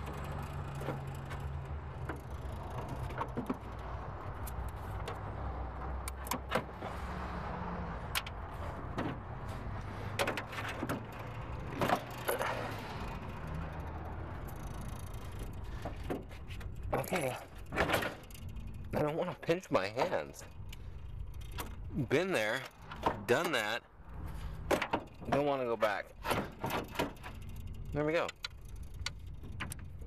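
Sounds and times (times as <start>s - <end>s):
metal clicks and clinks: 10.2s - 23.8s, 24.6s - 30.0s.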